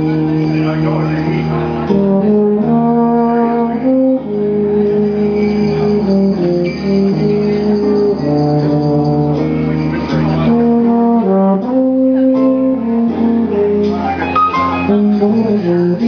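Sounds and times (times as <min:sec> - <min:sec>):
tubas and euphoniums playing: 0:00.0 - 0:16.0.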